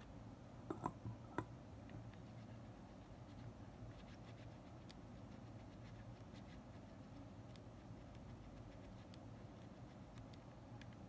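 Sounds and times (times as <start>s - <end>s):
faint low hum: 0.0s - 11.0s
cotton swab ticks: 7.4s - 11.0s.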